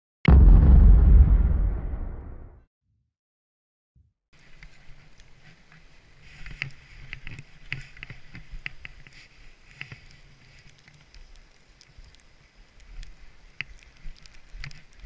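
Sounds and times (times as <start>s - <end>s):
skis sliding over snow: 4.4s - 11.1s.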